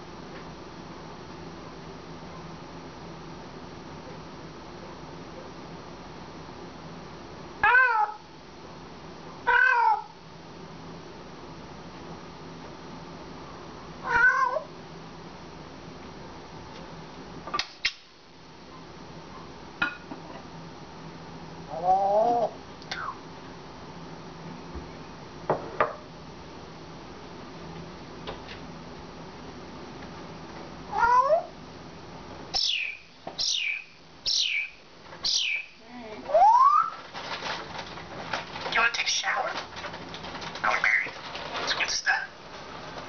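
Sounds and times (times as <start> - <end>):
parrot wavering call: 32.6 - 37.0.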